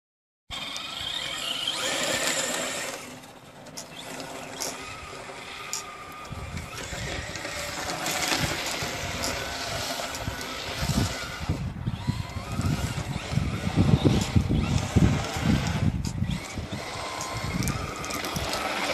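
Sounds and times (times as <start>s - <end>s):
rc car motor whining: 0.5s - 18.9s
wind buffeting microphone: 4.8s - 18.9s.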